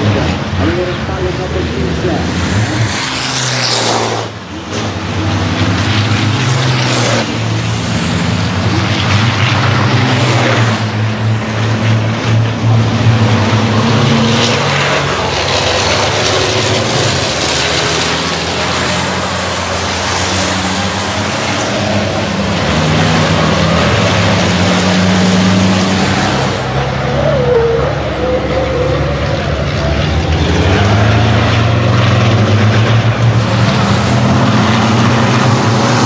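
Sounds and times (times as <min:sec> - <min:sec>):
racing truck engines: 0:00.0 - 0:36.0.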